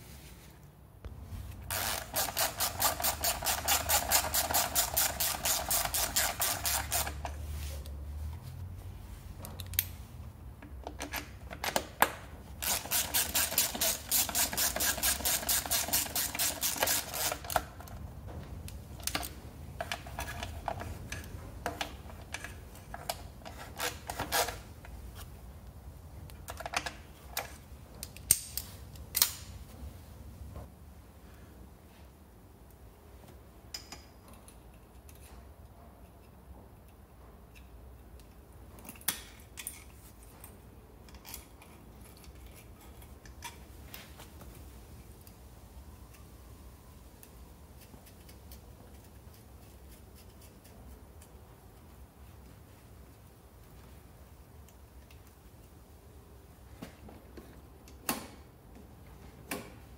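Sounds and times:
socket ratchet clicking: 0:01.7 - 0:07.4, 0:12.6 - 0:17.8.

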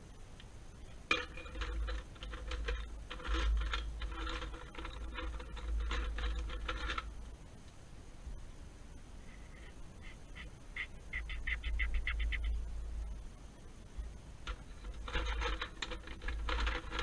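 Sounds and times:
pencils clattering in metal tin: 0:01.1 - 0:07.1, 0:14.4 - 0:17.0.

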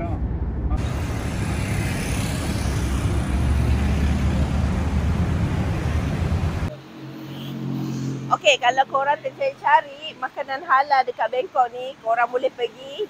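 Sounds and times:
busy city street traffic: 0:00.0 - 0:13.0.

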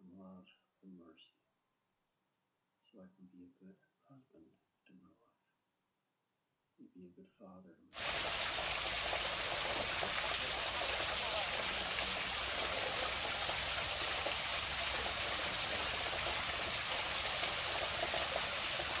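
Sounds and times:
small waterfall splashing over rocks: 0:08.0 - 0:19.0.

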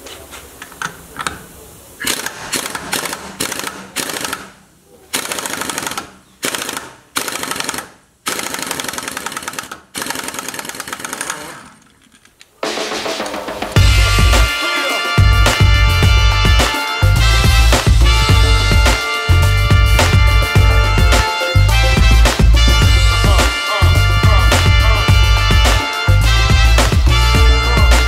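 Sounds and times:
pneumatic impact wrench hammering: 0:02.0 - 0:11.8.

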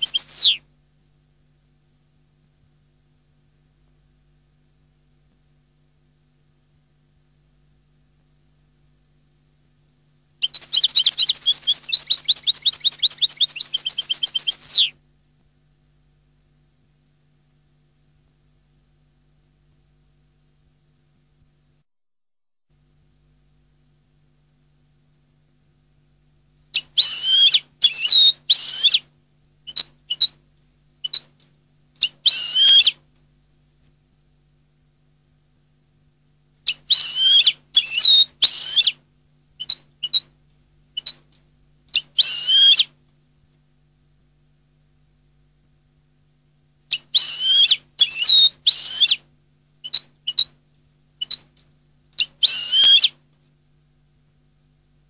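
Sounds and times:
bird call notes: 0:00.0 - 0:00.6, 0:10.4 - 0:14.9
finch warbling song: 0:00.0 - 0:00.6
goldfinch twittering song: 0:00.0 - 0:00.6, 0:10.4 - 0:14.9
faint low hum: 0:00.0 - 0:21.8, 0:22.7 - 0:55.0.

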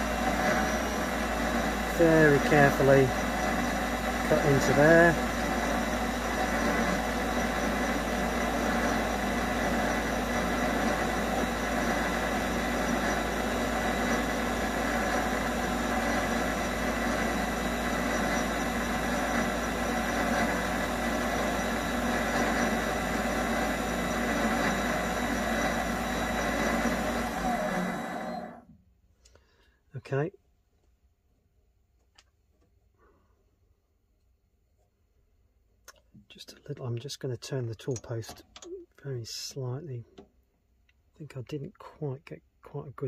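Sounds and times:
lathe tool cutting rubber: 0:00.0 - 0:28.7
lathe motor hum and whine: 0:00.0 - 0:28.8.

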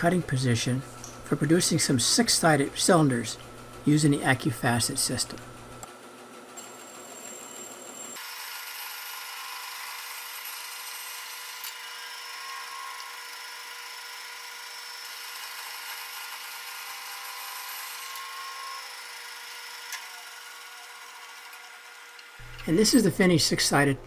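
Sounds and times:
band saw cutting wood: 0:08.2 - 0:23.9.

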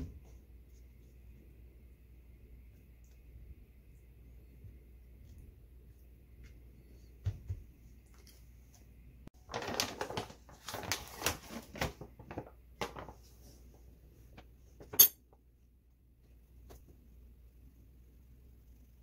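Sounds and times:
metal spoon clinking on counter: 0:14.9 - 0:15.2.

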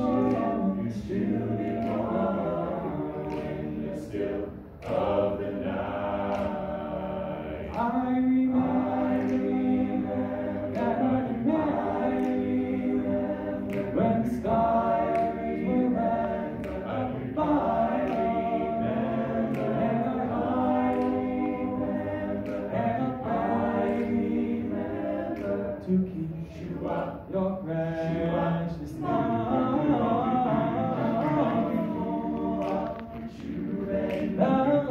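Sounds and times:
male group singing in harmony: 0:00.0 - 0:34.9
soloist singing: 0:25.4 - 0:34.9.

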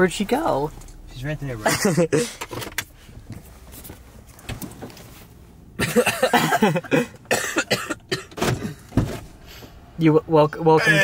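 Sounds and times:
person coughing: 0:05.8 - 0:08.8.

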